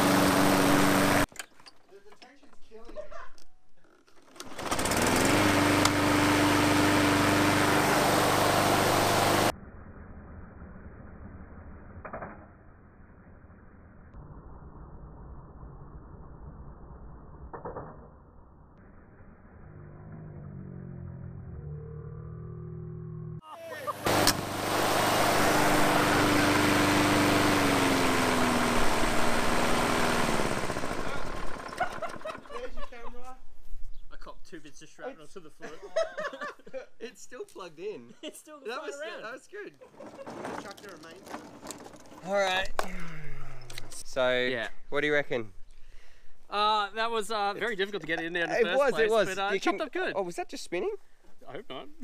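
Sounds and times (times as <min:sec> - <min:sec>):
lawn mower engine starting and running: 0:00.0 - 0:01.6, 0:04.0 - 0:09.5, 0:23.8 - 0:32.8, 0:39.8 - 0:42.7.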